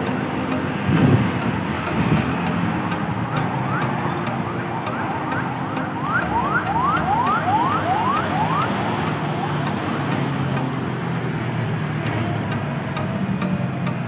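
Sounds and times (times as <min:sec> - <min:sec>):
low rumble of machinery and traffic: 0:00.0 - 0:14.0
electronic siren rising sweeps: 0:03.5 - 0:10.0.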